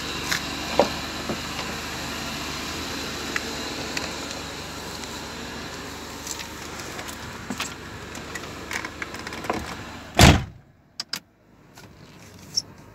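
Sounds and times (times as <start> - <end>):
outdoor background noise: 0.0 - 12.9
car door slamming shut: 9.4 - 10.6.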